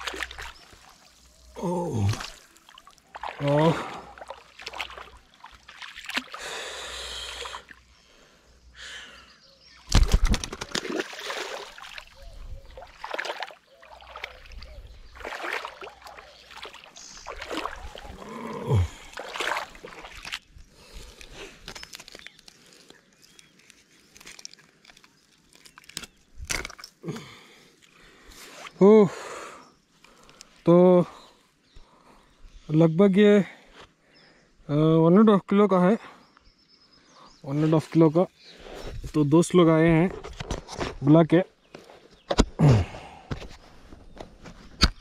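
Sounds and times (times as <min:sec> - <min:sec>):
water splashing and sloshing: 0:00.0 - 0:06.5, 0:09.8 - 0:22.2.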